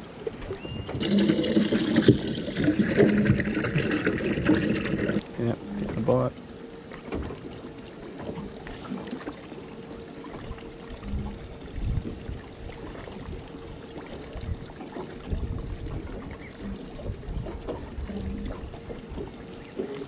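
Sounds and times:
bait tank pump humming: 0:00.7 - 0:05.2
water pouring into tank: 0:01.0 - 0:05.2.

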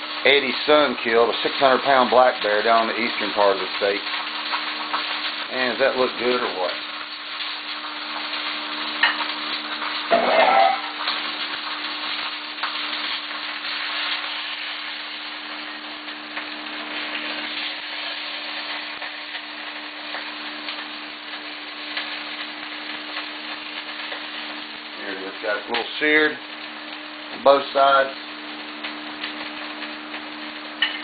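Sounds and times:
meat sizzling in oil: 0:00.0 - 0:31.0.

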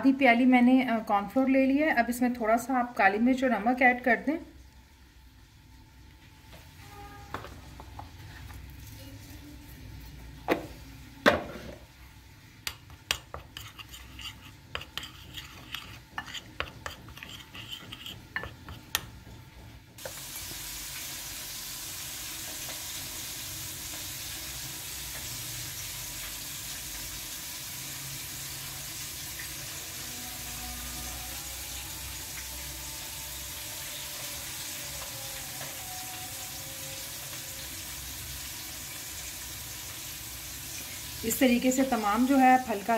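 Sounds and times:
frying oil sizzling: 0:18.2 - 0:42.9.

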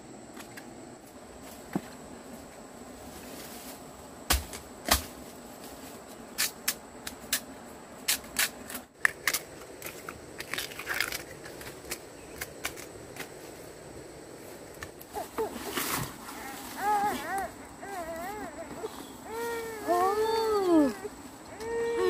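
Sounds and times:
bamboo cracking and snapping: 0:04.3 - 0:05.2, 0:08.1 - 0:13.3.

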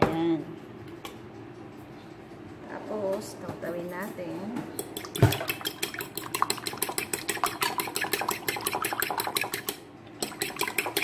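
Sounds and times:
fork beating eggs in a bowl: 0:04.8 - 0:11.0.

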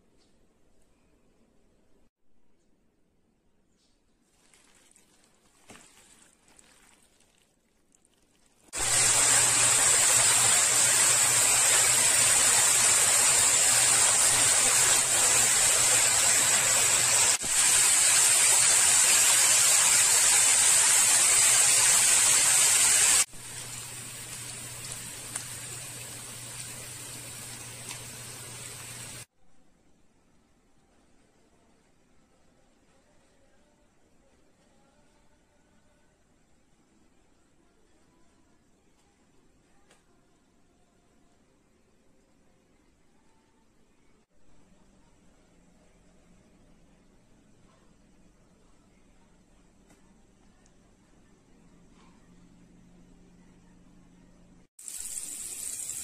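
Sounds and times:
meat sizzling in a frying pan: 0:54.8 - 0:56.0.

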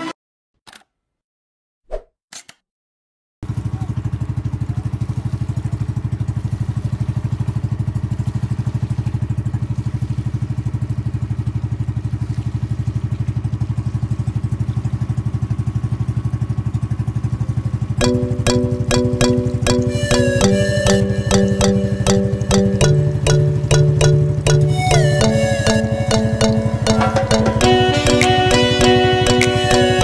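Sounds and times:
motorboat engine chugging: 0:03.5 - 0:30.0.

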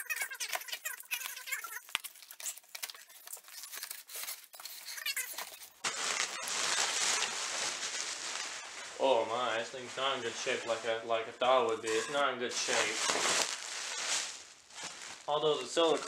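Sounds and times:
knife slicing packing tape: 0:00.1 - 0:05.7
steady hiss with low hum: 0:05.8 - 0:16.0.

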